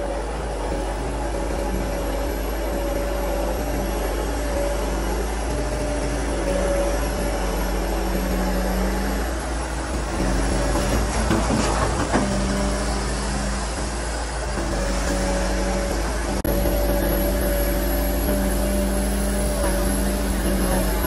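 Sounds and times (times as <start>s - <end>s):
excavator diesel engine: 0.0s - 21.0s
hydraulic whine: 0.0s - 21.0s
bucket load clattering: 9.3s - 21.0s.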